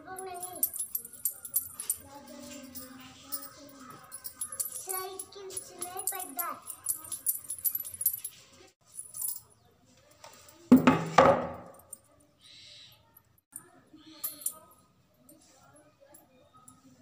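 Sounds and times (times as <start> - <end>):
anklet bells jingling: 0.0 - 9.6, 14.1 - 16.9.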